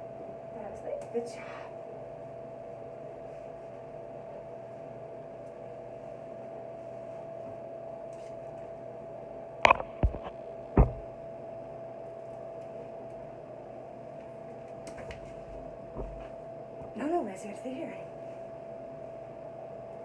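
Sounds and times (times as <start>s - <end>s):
steady background hum: 0.0s - 20.0s
sharp knocks on bathtub: 10.8s - 11.0s.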